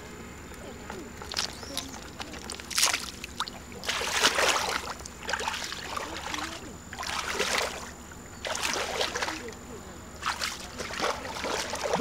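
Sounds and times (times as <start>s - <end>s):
water sloshing and splashing: 1.2s - 9.6s, 10.2s - 12.0s.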